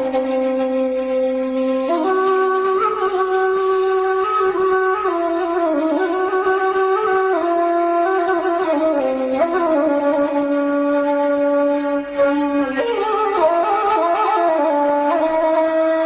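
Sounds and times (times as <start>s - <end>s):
reedy wind instrument melody: 0.0s - 16.0s.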